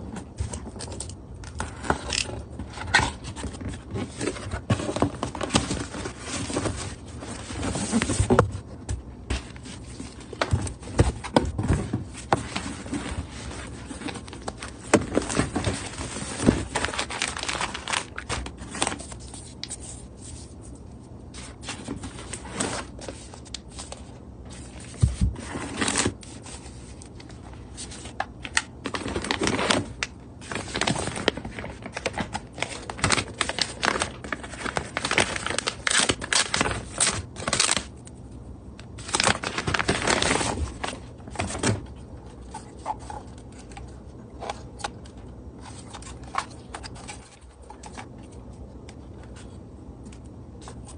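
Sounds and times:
cardboard and paper rustling: 0.0s - 38.2s, 38.8s - 50.9s.

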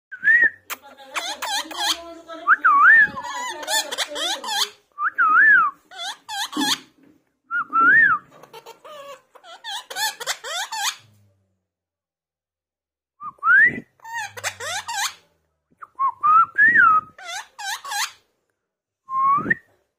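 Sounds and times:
parakeet whistling and chattering: 0.5s - 6.9s, 7.6s - 11.0s, 13.7s - 15.2s, 16.6s - 18.2s.

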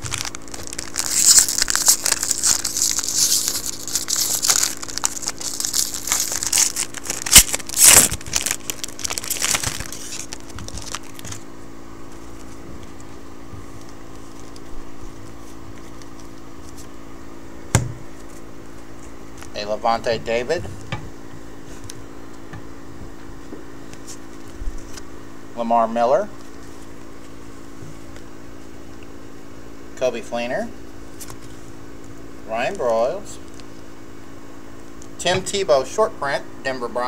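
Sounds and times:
sharp snaps of foil: 0.0s - 11.4s
foil wrapper crinkling and tearing: 0.0s - 11.5s, 13.8s - 16.9s.

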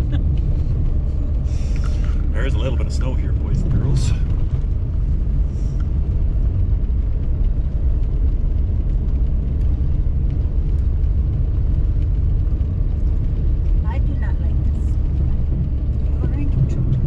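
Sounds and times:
vehicle rumble on snowy road: 0.0s - 17.0s.

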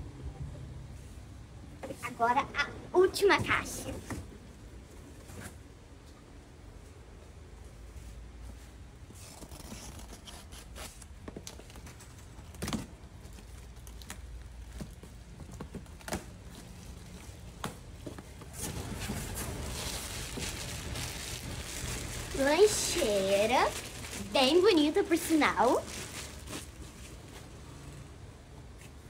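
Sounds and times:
plastic packaging crinkling: 18.4s - 27.4s.

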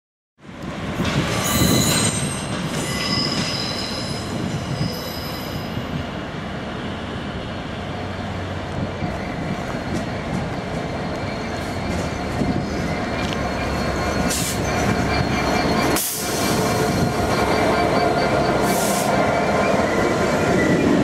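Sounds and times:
train wheels squealing: 1.3s - 6.1s, 9.0s - 21.0s
locomotive engine rumble: 7.9s - 21.0s.

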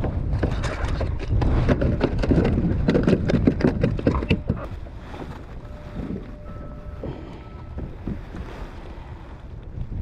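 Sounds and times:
knocks and slaps on kayak: 0.0s - 5.4s.

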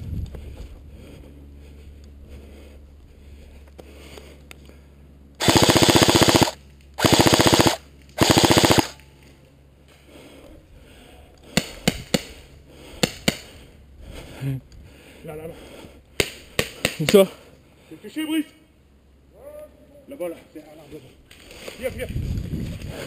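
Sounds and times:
airsoft rifle bursts: 5.4s - 9.0s
sharp single shots: 5.4s - 9.0s.

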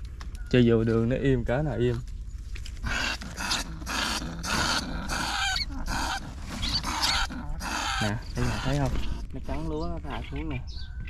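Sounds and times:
rat hissing: 2.8s - 9.3s.

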